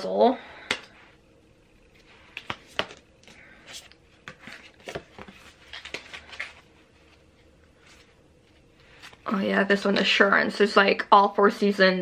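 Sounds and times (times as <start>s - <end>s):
cards flipped by hand: 1.9s - 6.7s.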